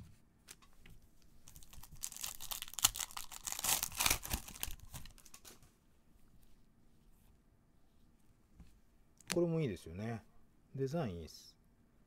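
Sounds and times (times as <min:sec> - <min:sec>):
card pack wrapper tearing: 0:01.5 - 0:05.5.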